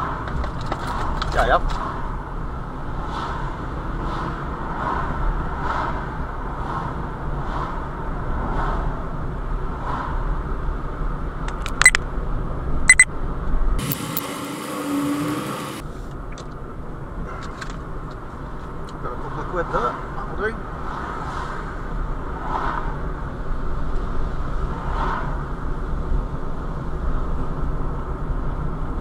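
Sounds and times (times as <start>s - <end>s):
tyre and engine rumble: 0.0s - 7.5s, 13.8s - 20.9s
sharp clicks: 11.5s - 12.0s.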